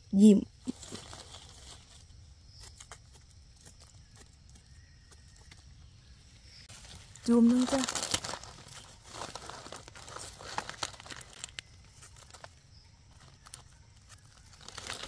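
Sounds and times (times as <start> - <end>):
dry leaves rustling: 0.6 - 5.8, 6.6 - 15.0
knife scraping soil: 0.7 - 5.6.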